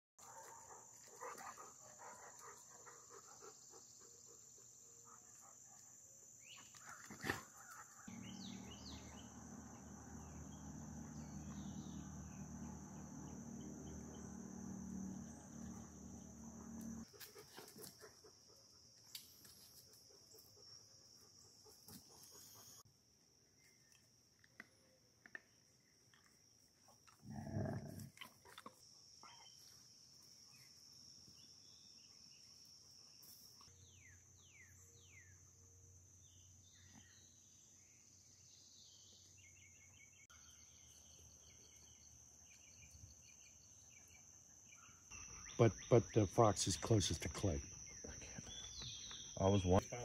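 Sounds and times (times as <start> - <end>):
insect chorus drone: 0.2 - 50.0
low hum: 8.1 - 17.1.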